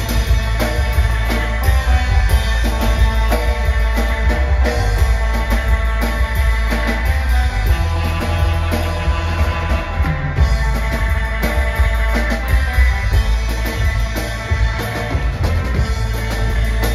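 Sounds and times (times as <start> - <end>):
surf rock band playing: 0.0 - 16.9.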